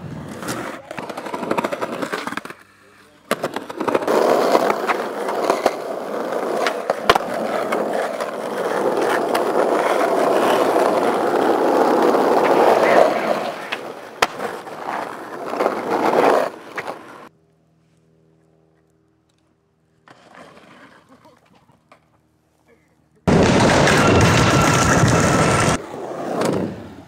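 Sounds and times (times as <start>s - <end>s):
skateboard wheels rolling on pavement: 0.0s - 17.3s, 19.8s - 22.3s, 23.2s - 27.0s
skateboard clacks: 0.1s - 17.3s.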